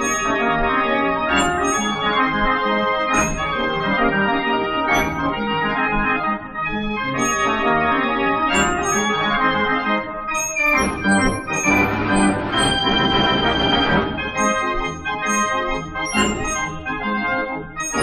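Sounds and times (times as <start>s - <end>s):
percussion strikes: 0.0s - 0.6s, 1.3s - 2.2s, 3.1s - 4.0s, 4.9s - 5.5s, 7.2s - 7.8s, 8.5s - 9.2s, 10.4s - 16.9s, 17.8s - 18.0s
street organ music: 10.9s - 17.3s.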